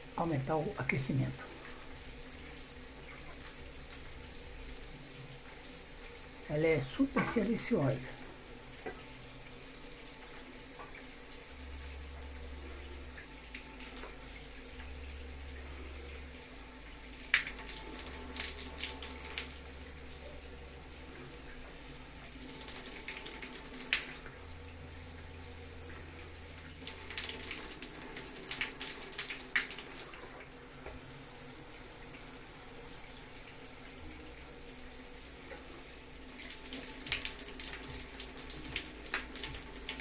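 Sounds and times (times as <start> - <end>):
shower water hissing: 0.0 - 40.0
sharp ticks and splats: 36.4 - 40.0.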